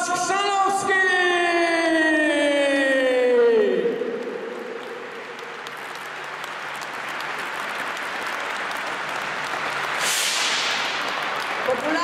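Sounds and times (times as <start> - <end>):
crowd applauding: 3.8 - 12.0
short hissing rush: 9.9 - 11.1.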